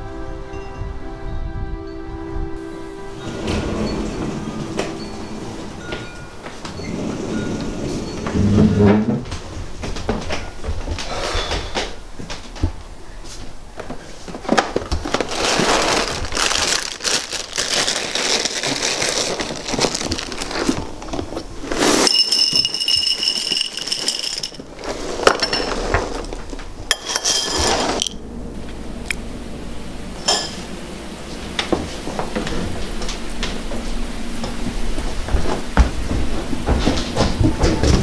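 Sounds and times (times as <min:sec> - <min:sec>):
high two-note tone: 0:00.4 - 0:06.9
cereal pouring into bowl: 0:21.7 - 0:25.9.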